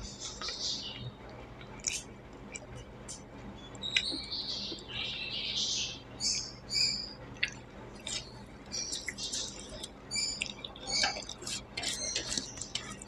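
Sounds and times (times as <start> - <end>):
close chewing: 0.1 - 3.3, 7.3 - 13.0
food squelching by hand: 7.4 - 13.0.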